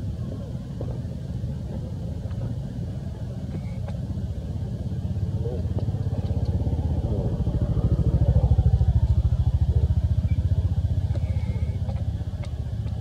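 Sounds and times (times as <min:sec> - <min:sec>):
small engine running: 0:04.9 - 0:13.0.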